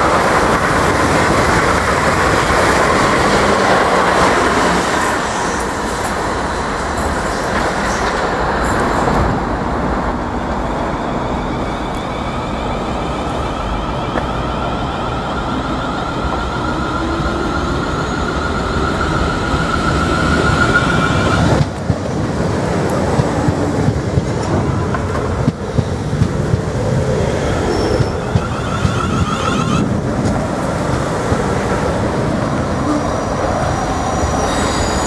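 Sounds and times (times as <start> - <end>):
high whine of train: 0.0 - 35.0
train wheels rumbling on rail: 0.0 - 35.0.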